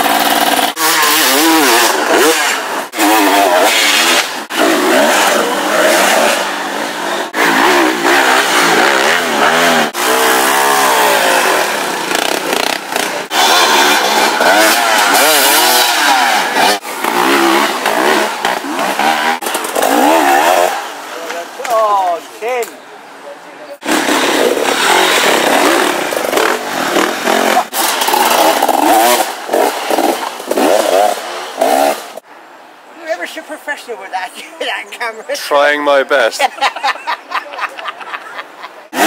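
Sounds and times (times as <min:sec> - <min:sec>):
dirt bike engines revving: 0:00.0 - 0:32.3, 0:34.4 - 0:39.0.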